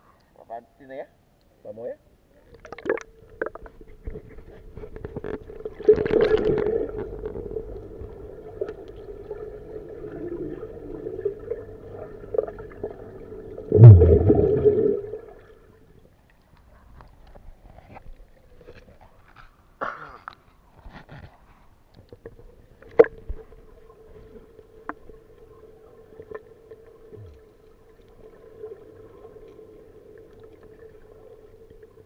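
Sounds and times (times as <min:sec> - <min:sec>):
steady underwater hum: 0:01.2 - 0:19.8, 0:20.4 - 0:32.0
underwater sloshing: 0:02.3 - 0:19.8, 0:20.5 - 0:32.0
bubbles gurgling: 0:02.5 - 0:03.7, 0:05.4 - 0:15.8.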